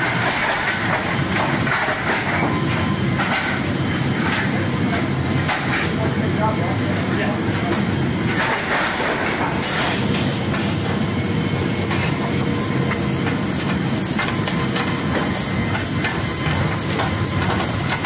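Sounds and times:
aircraft cabin rumble and hiss: 0:00.0 - 0:18.0
metal chains clinking: 0:08.3 - 0:11.0, 0:11.7 - 0:18.0.

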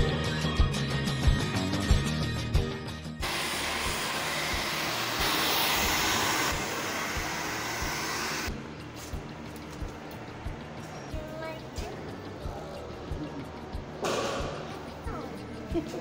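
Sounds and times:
background music with beat: 0:00.0 - 0:03.3, 0:07.9 - 0:16.0
hair dryer blowing: 0:03.2 - 0:08.5.

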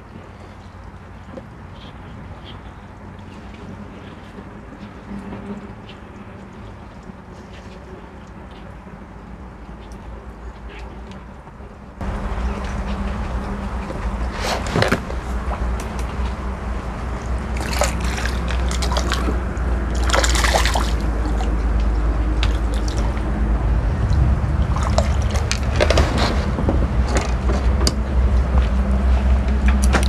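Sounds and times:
steady low hum: 0:00.0 - 0:30.0
water splashing: 0:12.0 - 0:30.0.

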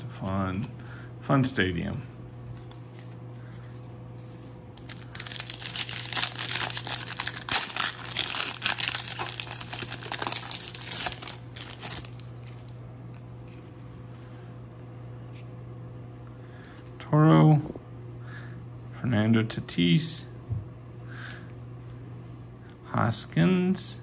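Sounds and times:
foil wrapper tearing and crinkling: 0:04.7 - 0:12.8.

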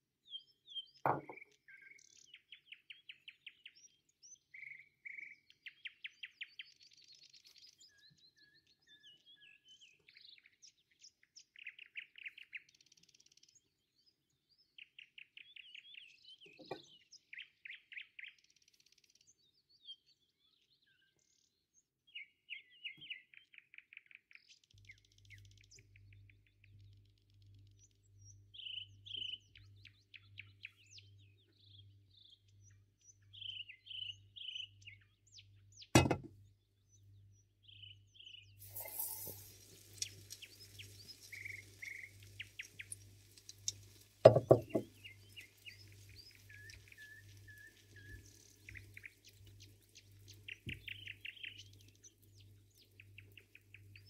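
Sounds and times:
small birds chirping: 0:00.2 - 0:54.0
loud thump: 0:36.0 - 0:36.3
sharp knock: 0:36.0 - 0:36.3, 0:44.3 - 0:44.9
batter sizzling in hot oil: 0:38.6 - 0:53.0.

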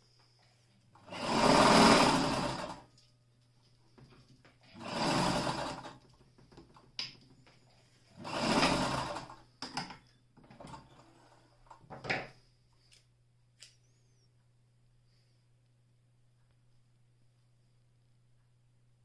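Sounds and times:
sewing machine stitching: 0:01.0 - 0:02.9, 0:04.7 - 0:06.1, 0:08.1 - 0:09.4, 0:10.5 - 0:11.5.

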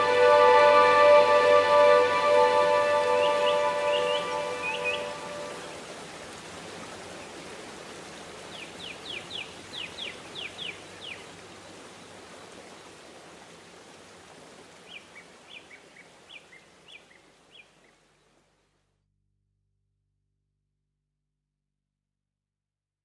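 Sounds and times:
waterfall rushing: 0:00.0 - 0:15.6
bird calling: 0:02.4 - 0:05.8.

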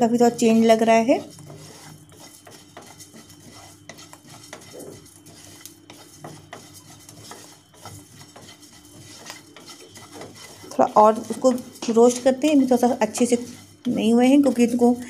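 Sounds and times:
seeds scraping and ticking in pan: 0:00.2 - 0:15.0.

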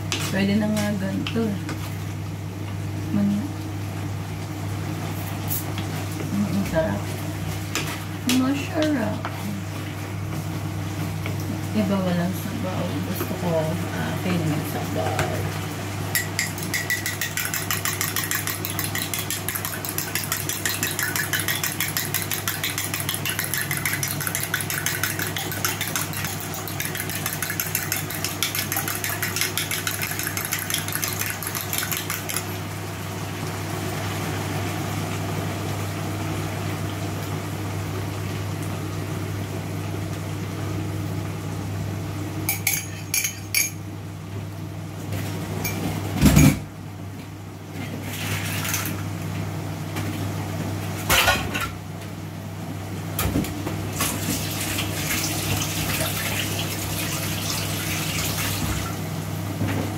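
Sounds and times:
steady low hum: 0:00.0 - 0:34.1
metal utensil scraping pot: 0:16.4 - 0:32.4.

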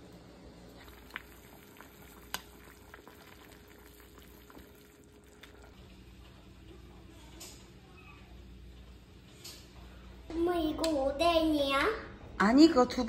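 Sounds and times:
soup bubbling in a pot: 0:00.6 - 0:08.6.

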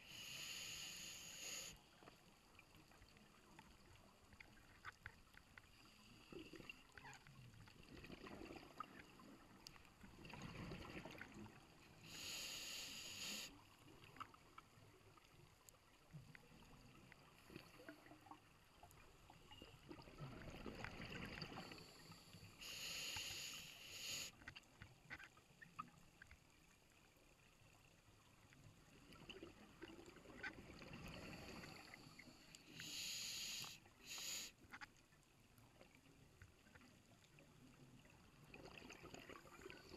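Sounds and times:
diver breathing through regulator: 0:00.0 - 0:01.8, 0:12.0 - 0:13.6, 0:21.6 - 0:24.4, 0:32.7 - 0:34.6
regulator hiss: 0:00.0 - 0:01.8, 0:12.0 - 0:13.5, 0:22.6 - 0:24.3, 0:32.7 - 0:34.6.

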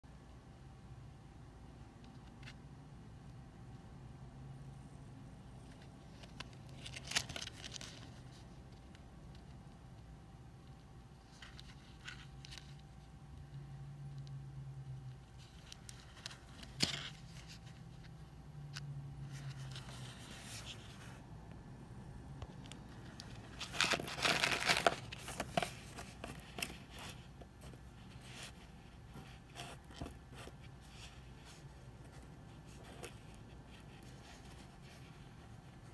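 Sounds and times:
plastic bag crinkling: 0:23.0 - 0:27.0.

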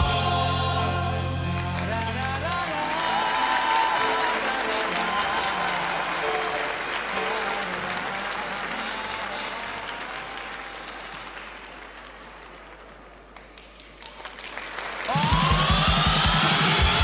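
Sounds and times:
audience applause: 0:01.5 - 0:17.0
music with heavy beat: 0:15.1 - 0:17.0.

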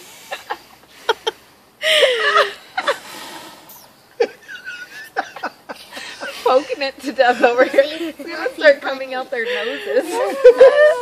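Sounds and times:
woman's muffled laughter: 0:09.5 - 0:11.0.

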